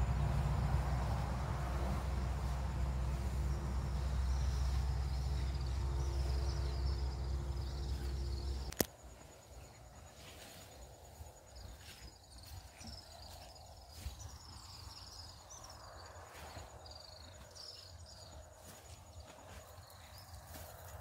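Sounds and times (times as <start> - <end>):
low steady hum: 0.0 - 9.8
insect trill: 0.0 - 21.0
click: 8.7 - 8.9.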